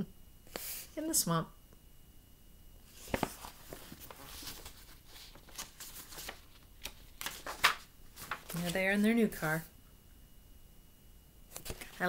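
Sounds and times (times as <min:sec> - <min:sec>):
paper rustling and clicks: 0:03.0 - 0:09.0, 0:11.5 - 0:12.0.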